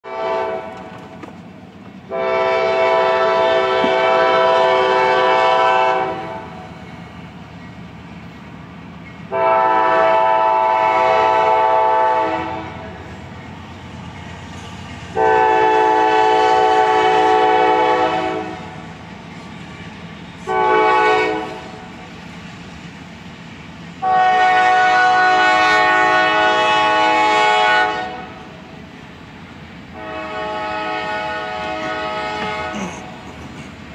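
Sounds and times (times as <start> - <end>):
locomotive air horn blasts: 0.0 - 0.9, 2.1 - 6.6, 9.3 - 13.0, 15.2 - 18.8, 20.4 - 21.8, 24.0 - 28.5, 29.9 - 33.2
train engines rumbling: 0.0 - 33.9.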